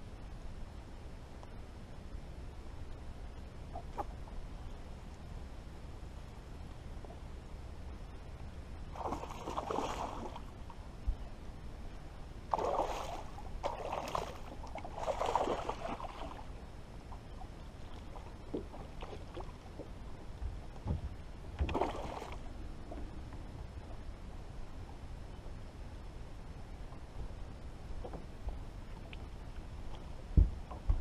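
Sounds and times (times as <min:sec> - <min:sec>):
fish splashing in water: 0:09.0 - 0:10.5, 0:12.5 - 0:16.4.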